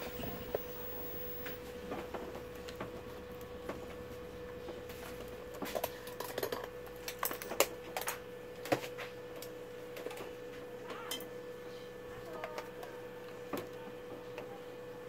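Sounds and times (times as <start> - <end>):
faint steady hum: 0.0 - 8.5.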